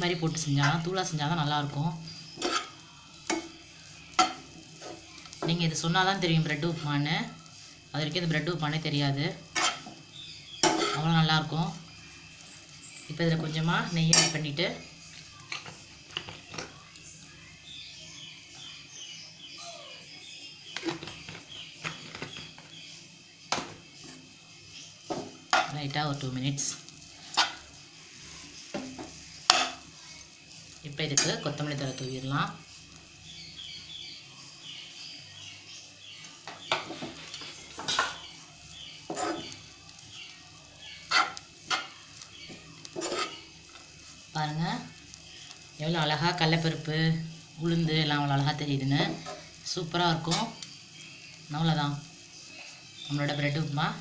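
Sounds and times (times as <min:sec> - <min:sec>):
spoon scraping and knocking pan: 0:00.0 - 0:06.8, 0:08.2 - 0:11.4, 0:13.2 - 0:14.8, 0:20.7 - 0:22.9, 0:25.0 - 0:25.8, 0:26.6 - 0:30.0, 0:36.4 - 0:40.2, 0:40.8 - 0:43.9, 0:49.0 - 0:49.6
birds chirping: 0:00.0 - 0:54.0.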